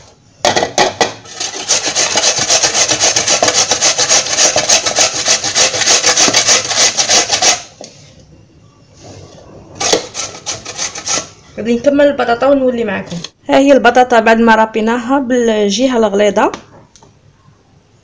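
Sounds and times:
potato grated on metal grater: 0:01.2 - 0:07.7, 0:09.8 - 0:11.4.

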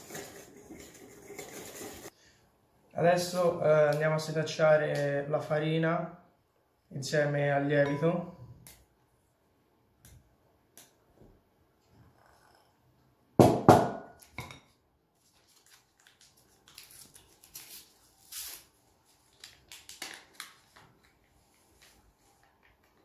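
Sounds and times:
paper packet rustling and tearing: 0:00.0 - 0:02.1, 0:15.2 - 0:23.0
glass and metal bowls knocking: 0:07.8 - 0:08.2.

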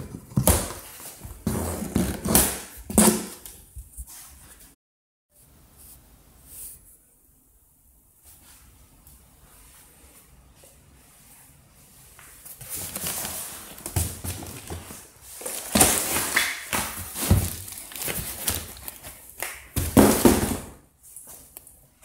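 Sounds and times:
cardboard and plastic wrap rustling: 0:12.4 - 0:21.5.

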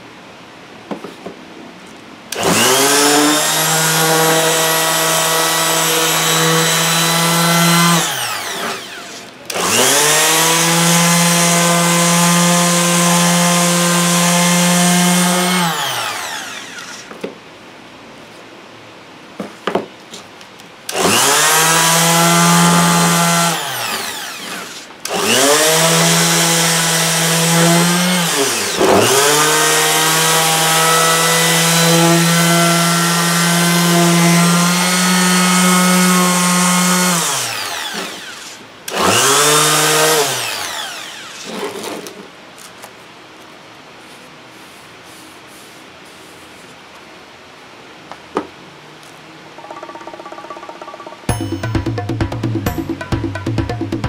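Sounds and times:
electric orbital sander: 0:02.3 - 0:17.3, 0:20.9 - 0:42.2.

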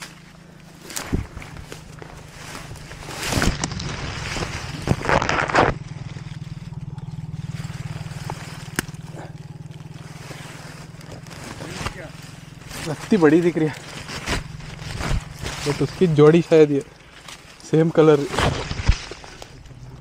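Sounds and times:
rustling scraping noise: 0:00.0 - 0:06.6, 0:07.5 - 0:20.0.

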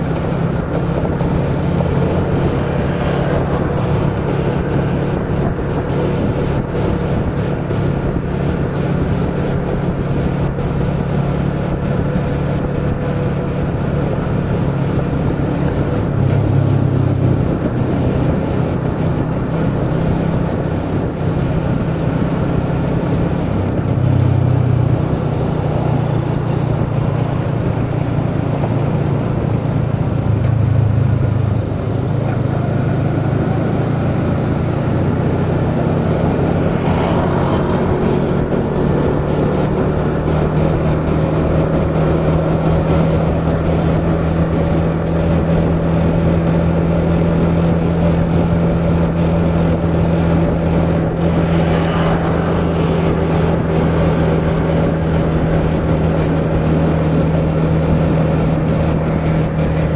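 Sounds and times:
motorcycle engine running: 0:00.0 - 0:59.9
wind rushing over microphone: 0:00.0 - 0:59.9.

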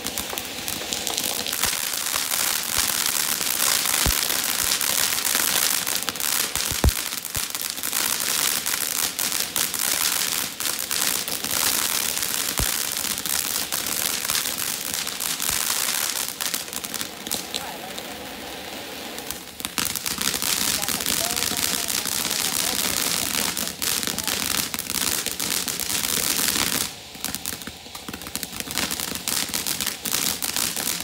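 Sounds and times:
fountain firework hissing and crackling: 0:00.0 - 0:31.0
sharp pop: 0:06.6 - 0:07.0, 0:12.6 - 0:12.8.

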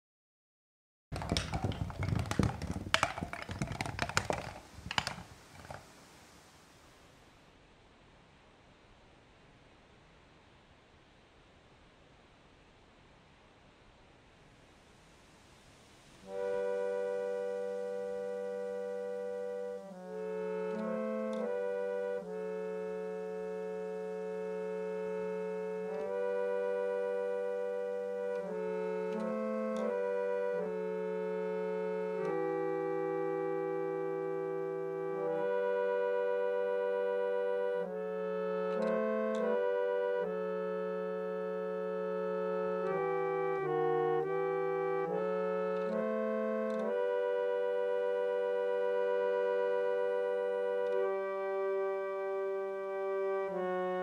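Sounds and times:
clattering knocks and taps: 0:01.2 - 0:05.9
harmonium playing chords: 0:16.2 - 0:54.0.

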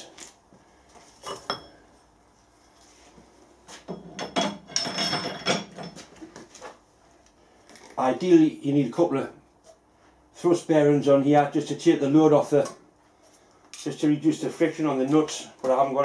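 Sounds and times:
steel parts clinking and knocking: 0:03.9 - 0:06.1.

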